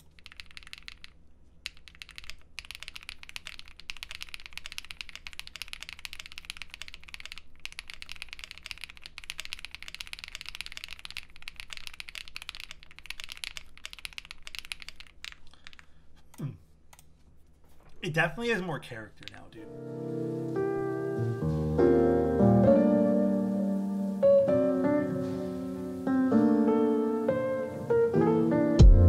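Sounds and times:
mechanical keyboard typing: 0.0s - 15.9s.

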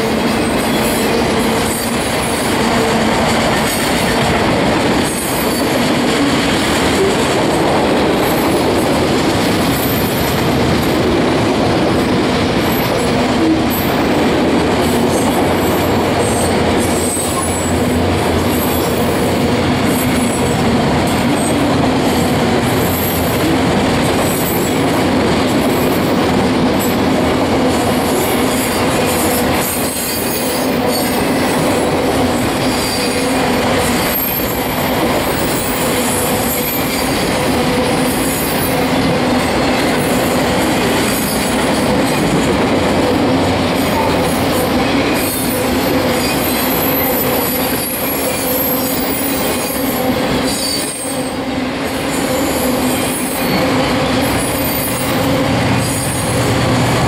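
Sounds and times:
wheel squeals: 45.1s - 51.4s.

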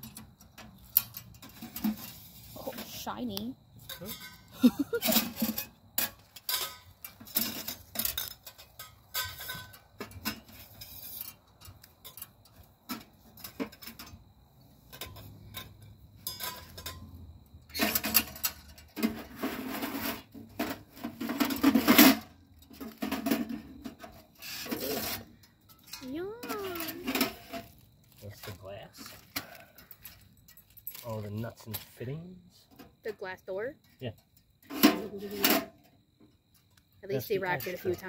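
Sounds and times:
metal stove parts clinking: 0.0s - 14.2s, 14.9s - 27.7s
scraping handling noise: 0.0s - 32.0s, 34.6s - 35.9s.

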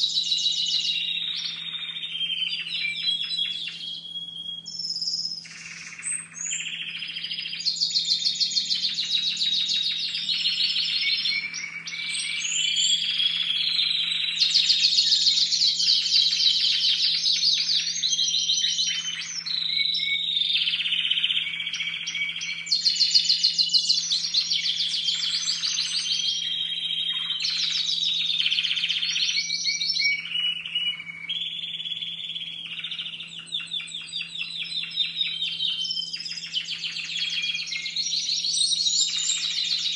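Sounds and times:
canaries singing rolling trills: 0.0s - 39.9s.

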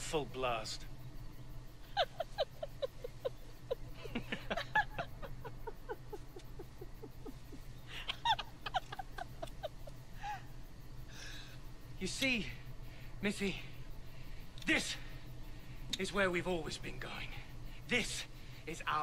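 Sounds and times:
steady low hum: 0.0s - 19.0s
woman laughing: 1.8s - 10.5s.

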